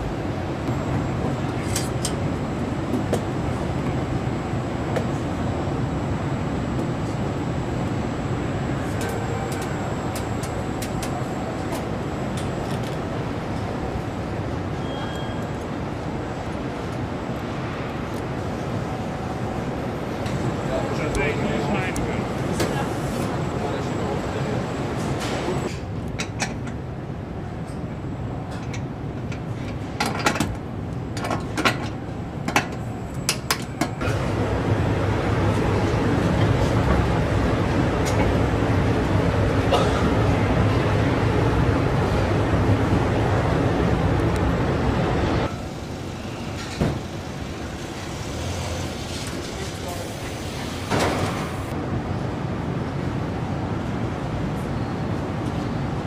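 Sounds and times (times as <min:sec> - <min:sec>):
low factory hum: 0:00.0 - 0:56.0
machinery noise: 0:34.0 - 0:51.7.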